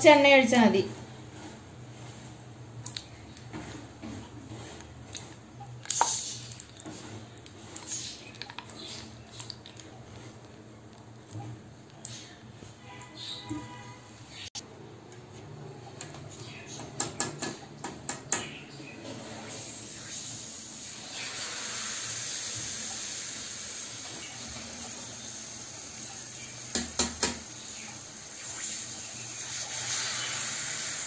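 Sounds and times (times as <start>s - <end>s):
batter sizzling in hot oil: 3.5s - 10.8s, 19.4s - 31.0s.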